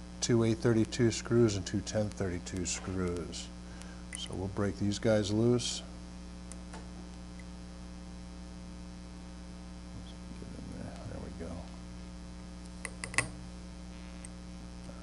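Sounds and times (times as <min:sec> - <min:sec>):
mains hum: 0:00.0 - 0:15.0
sharp metal clicks: 0:12.8 - 0:13.3.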